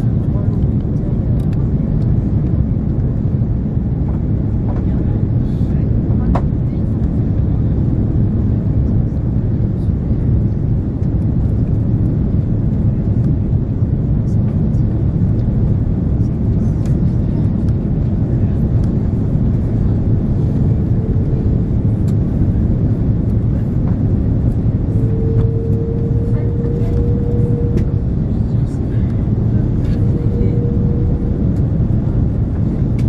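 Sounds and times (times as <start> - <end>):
airplane cabin engine rumble: 0.0 - 33.0
faint steady hum: 16.5 - 33.0.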